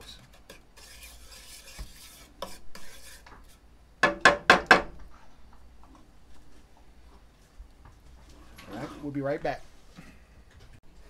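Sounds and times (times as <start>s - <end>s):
wooden spatula scraping metal pan: 0.0s - 3.7s, 8.4s - 9.6s.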